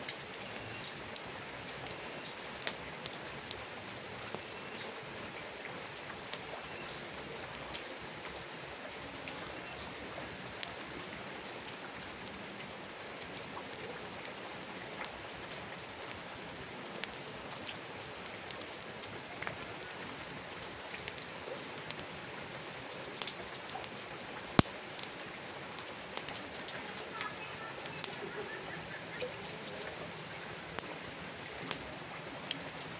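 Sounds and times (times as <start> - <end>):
campfire crackling and popping: 0.0 - 32.9
rain hissing: 0.0 - 32.9.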